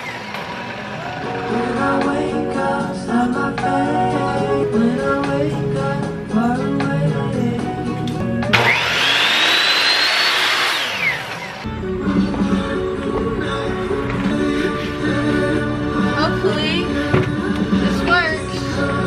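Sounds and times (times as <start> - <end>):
miter saw cutting wood: 0.0 - 1.7, 8.5 - 11.7
pop music with singing: 1.0 - 8.9, 11.6 - 19.0.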